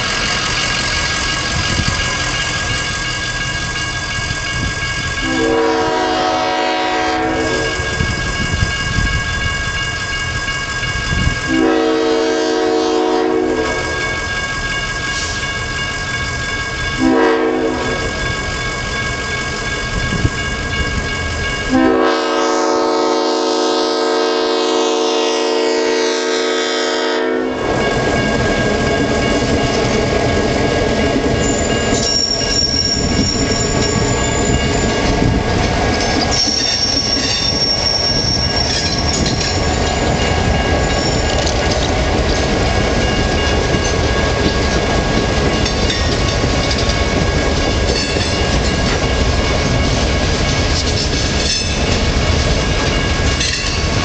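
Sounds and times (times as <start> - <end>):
crossing bell ringing: 0.0 - 54.0
locomotive engine and wheels on rails: 0.0 - 54.0
locomotive horn blasts: 5.2 - 7.9, 11.5 - 14.0, 17.0 - 18.0, 21.7 - 27.6.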